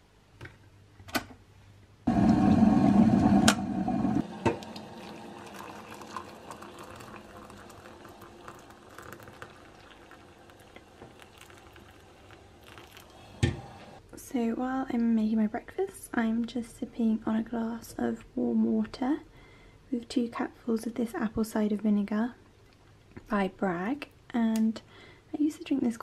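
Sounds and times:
hot water pouring into cup: 0:02.1 - 0:14.0
water boiling: 0:02.1 - 0:14.0.

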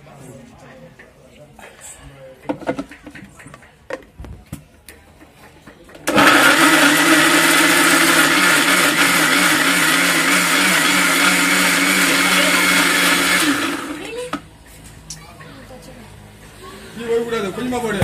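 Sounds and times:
electric mixer grinder running: 0:06.1 - 0:14.4.

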